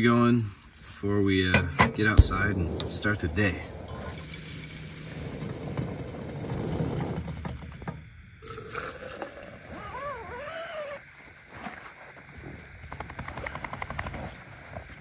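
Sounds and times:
gas stove flame hissing: 0:00.6 - 0:09.7
wavering whine: 0:02.0 - 0:08.4.

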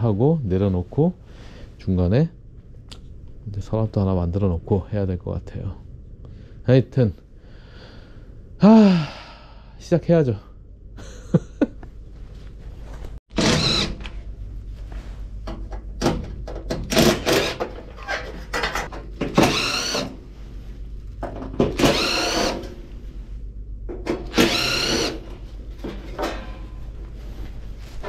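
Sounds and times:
cordless drill motor whine: 0:13.4 - 0:14.0, 0:19.4 - 0:20.2, 0:21.8 - 0:22.7, 0:24.3 - 0:25.3.

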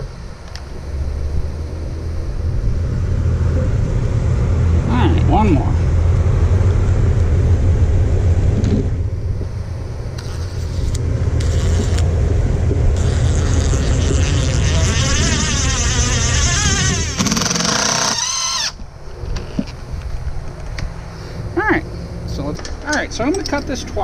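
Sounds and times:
steady low rumble: 0:00.0 - 0:17.2
cordless drill motor whine: 0:13.0 - 0:18.8.

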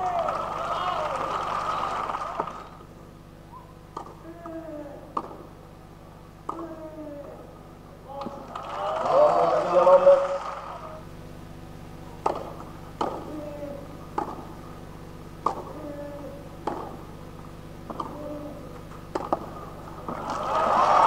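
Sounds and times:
crowd applause: 0:00.0 - 0:02.8, 0:08.4 - 0:11.0, 0:20.0 - 0:21.0
tennis racket hitting ball: 0:03.9 - 0:05.5, 0:06.4 - 0:06.9, 0:12.2 - 0:14.6, 0:15.4 - 0:17.1, 0:17.8 - 0:20.2.

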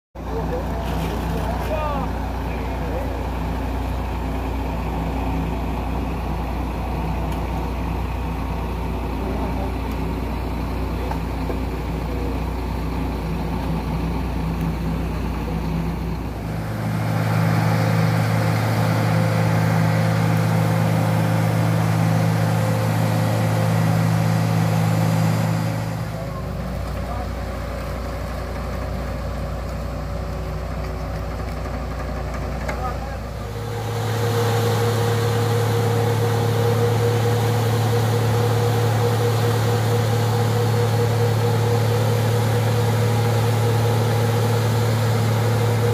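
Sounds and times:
heavy machinery engine humming: 0:00.2 - 0:45.9.

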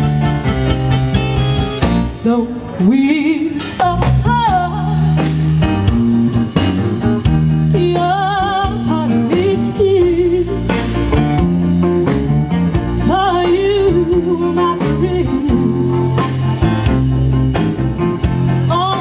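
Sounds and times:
steady bass line: 0:00.0 - 0:02.4, 0:03.8 - 0:19.0
guitar: 0:00.0 - 0:19.0
person singing: 0:13.1 - 0:16.3.

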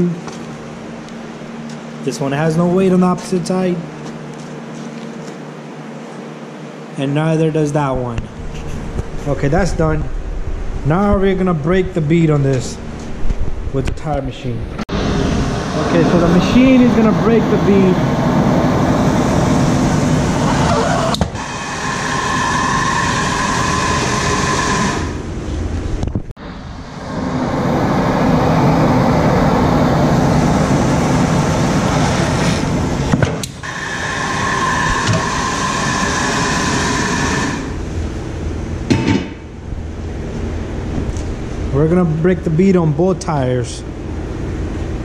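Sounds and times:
compressed air hissing: 0:14.9 - 0:25.2, 0:26.8 - 0:37.8.

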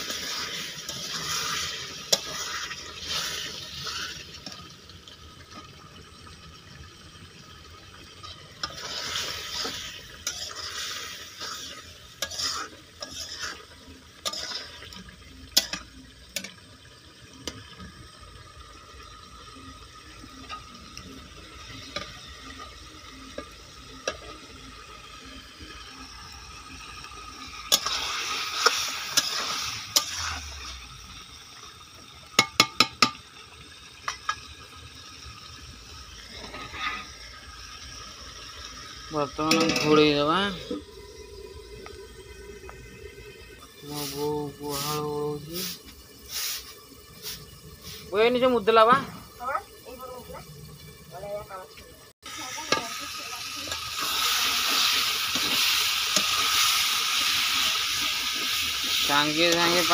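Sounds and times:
spatula scraping a pan: 0:00.0 - 0:04.6, 0:08.6 - 0:15.0, 0:27.7 - 0:30.6, 0:36.3 - 0:37.2
curry sizzling: 0:00.0 - 0:59.9.

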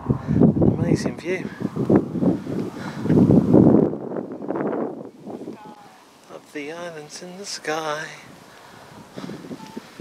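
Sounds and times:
wind buffeting microphone: 0:00.0 - 0:06.2, 0:08.1 - 0:10.0.

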